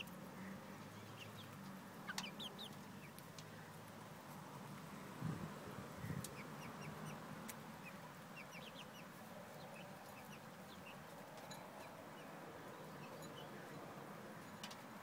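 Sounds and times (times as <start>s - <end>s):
chicks cheeping: 0.0s - 3.3s, 6.0s - 13.7s.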